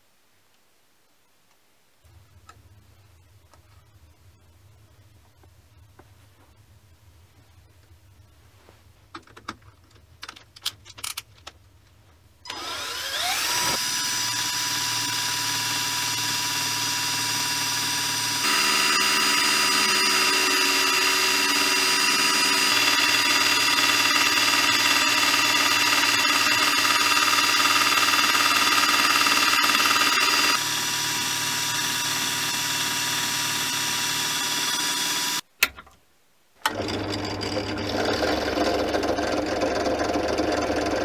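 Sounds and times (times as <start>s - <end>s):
cordless drill whining: 12.5s - 35.4s.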